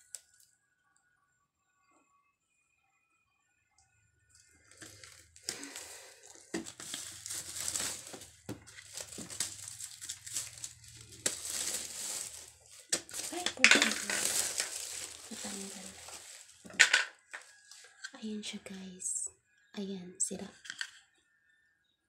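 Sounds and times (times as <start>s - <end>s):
plastic wrapping crinkling: 4.4s - 18.0s.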